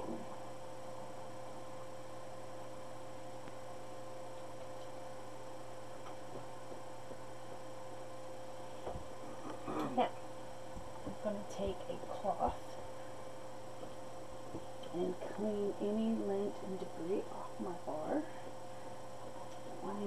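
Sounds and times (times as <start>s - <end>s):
electrical hum: 0.0s - 20.0s.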